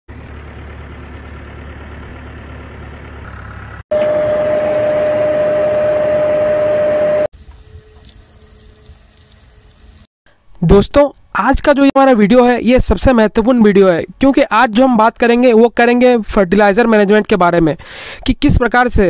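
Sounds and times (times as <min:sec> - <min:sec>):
low engine rumble: 0:00.1 - 0:08.0.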